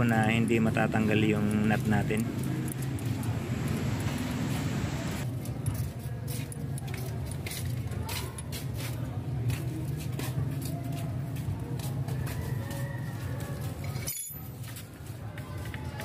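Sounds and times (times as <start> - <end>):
small metal clicks and jingles: 1.4 - 3.4, 5.2 - 9.0, 13.6 - 16.0
steady low hum: 1.4 - 5.2.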